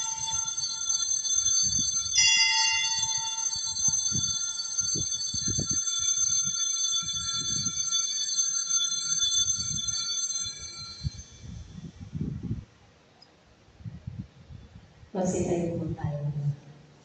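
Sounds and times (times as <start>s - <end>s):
altar bells ringing: 0.0s - 11.9s.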